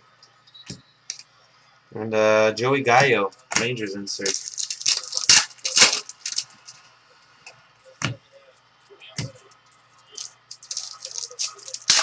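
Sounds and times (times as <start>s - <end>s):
cards and foil wrappers rustling: 4.2s - 6.8s, 10.0s - 12.0s.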